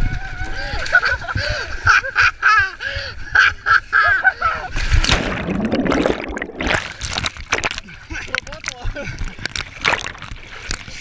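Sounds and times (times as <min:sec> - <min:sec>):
seawater splashing: 0:04.8 - 0:11.0
churning water rush: 0:05.0 - 0:11.0.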